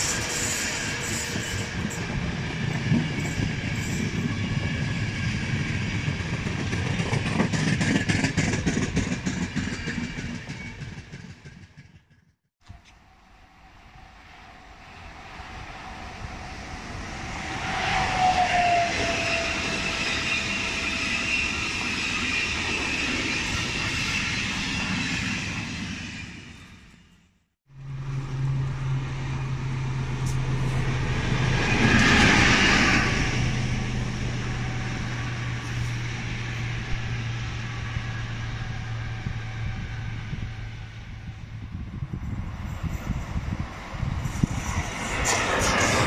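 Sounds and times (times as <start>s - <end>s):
train wheel and air rush: 0.0s - 27.1s, 27.7s - 46.0s
diesel locomotive low hum: 27.7s - 46.0s.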